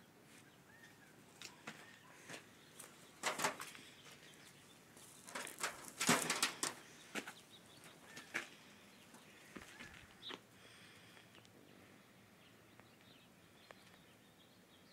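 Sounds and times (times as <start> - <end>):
turkey feathers rustling: 5.0 - 8.6.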